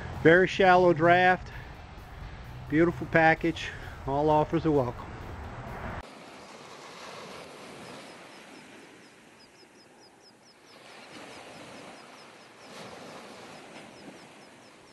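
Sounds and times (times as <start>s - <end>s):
surf washing over beach: 6.0s - 14.9s
small bird chirping: 7.9s - 10.8s, 11.5s - 13.0s, 13.9s - 14.9s.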